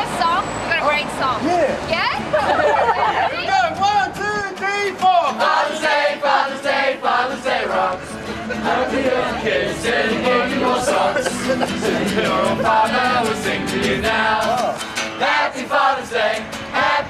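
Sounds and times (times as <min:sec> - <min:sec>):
group of young people singing: 0:05.3 - 0:17.0.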